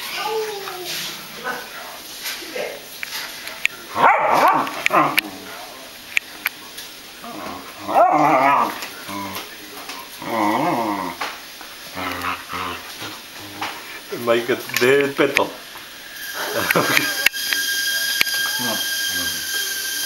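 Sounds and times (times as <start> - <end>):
puppy whining: 11.9 - 13.7.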